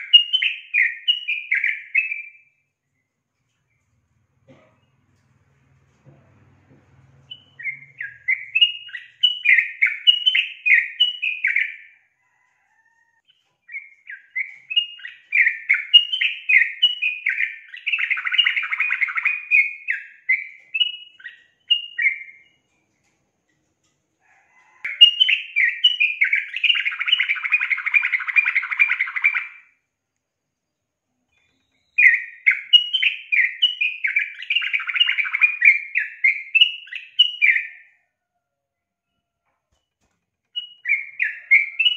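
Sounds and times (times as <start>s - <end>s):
bird chattering song: 7.2s - 11.9s, 13.2s - 22.5s, 24.9s - 29.7s, 31.3s - 37.9s, 40.6s - 41.9s.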